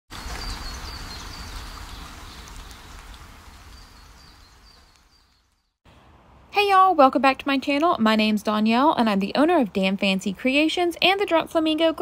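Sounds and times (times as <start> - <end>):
bird chirping: 0.2 - 5.8.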